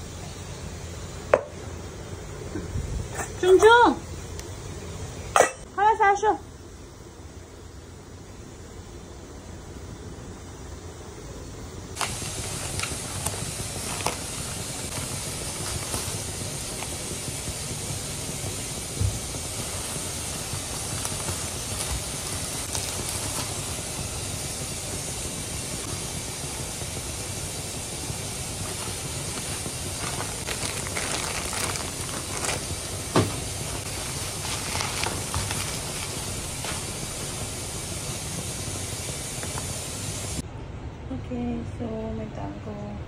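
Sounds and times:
steady hiss: 0.0 - 40.4
plastic bags rustling and crinkling: 12.0 - 17.1, 19.1 - 24.0, 28.6 - 37.5.

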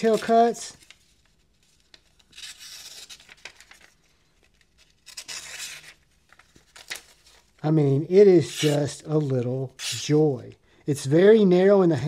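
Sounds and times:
knife slicing paper: 8.4 - 10.2.

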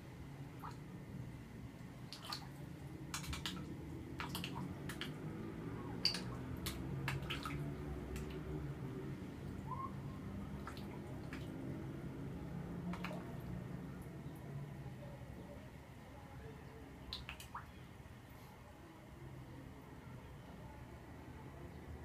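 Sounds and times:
low steady hum: 0.0 - 22.0
small sharp water splashes: 0.6 - 0.9, 1.8 - 14.6, 17.0 - 17.9.

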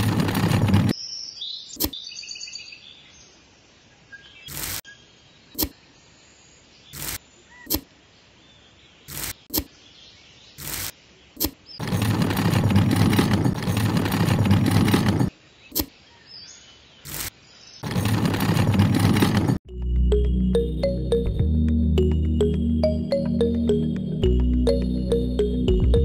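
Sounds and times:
small shovel scraping sand: 4.4 - 4.9, 6.9 - 7.9, 9.1 - 9.7, 10.6 - 11.5, 17.0 - 17.4.

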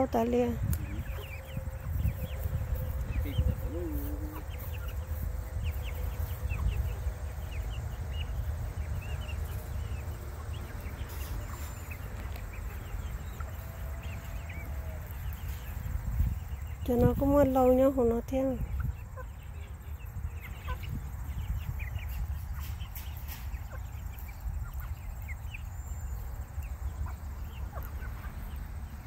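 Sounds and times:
steady low rumble: 0.0 - 22.9
chicks peeping and chirping: 0.0 - 29.0
lower chicken calls: 0.8 - 8.4.

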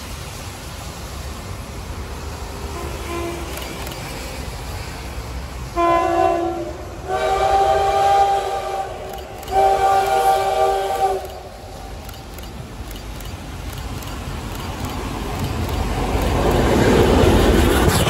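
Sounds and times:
locomotive chime horn blasts: 5.8 - 11.5.

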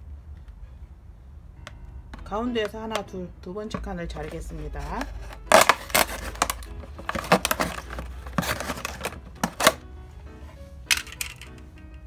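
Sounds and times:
soft background music: 0.0 - 12.0
plastic bottle crackling: 3.8 - 9.8.

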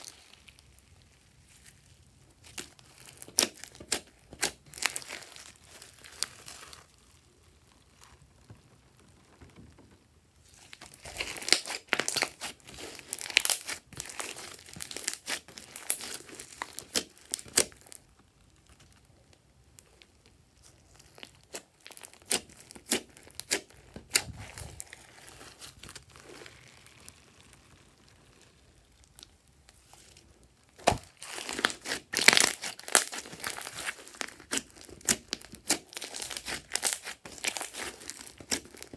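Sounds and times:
slime squishing with sticky clicks: 0.0 - 38.9.

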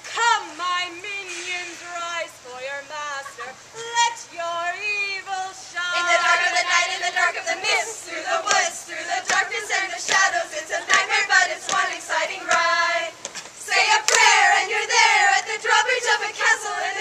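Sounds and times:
group of voices singing: 5.1 - 17.0
scattered claps: 8.4 - 14.4.

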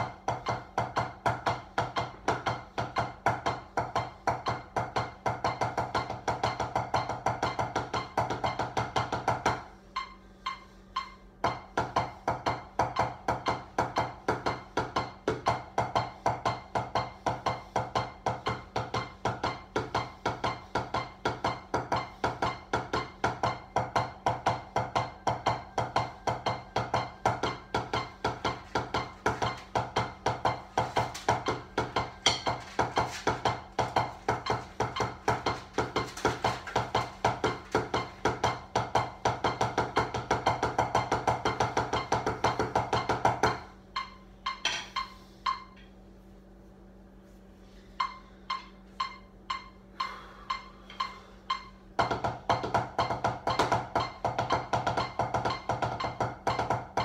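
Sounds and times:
drumsticks on practice pad: 47.9 - 57.0.

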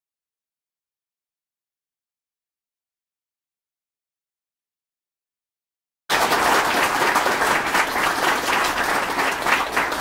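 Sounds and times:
audience applauding: 6.1 - 10.0.

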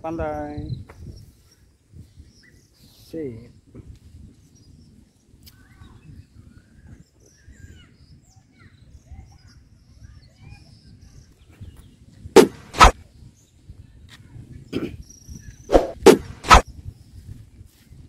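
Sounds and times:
faint bird chirps: 0.6 - 3.6, 4.2 - 12.1, 13.2 - 15.9.

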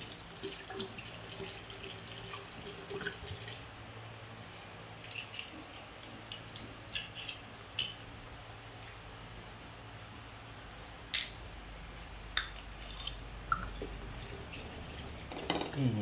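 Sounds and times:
glass bottles clinking: 15.3 - 15.8.

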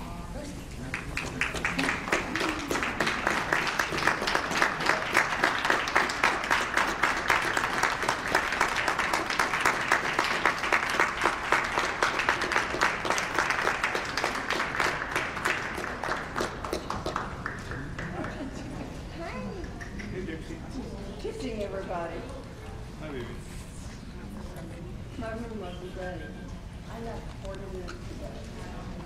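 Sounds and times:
audience applauding: 0.8 - 18.8.

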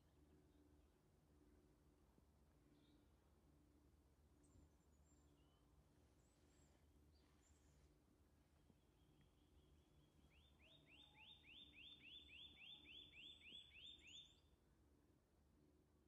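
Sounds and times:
songbird whistling faintly: 8.6 - 14.4.

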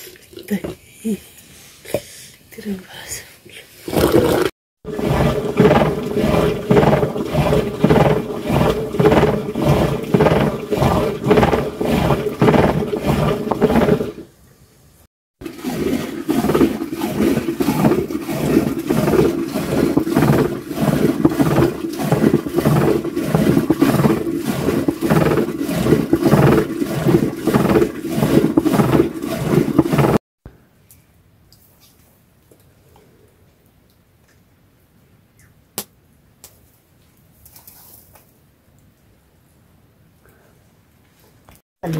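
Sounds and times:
wooden stick churning milk: 3.9 - 14.3, 15.4 - 30.2.

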